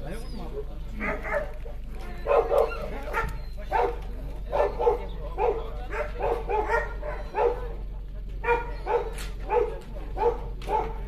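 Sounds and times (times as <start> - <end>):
dog barking: 1.0 - 1.5, 2.2 - 7.8, 8.4 - 11.0.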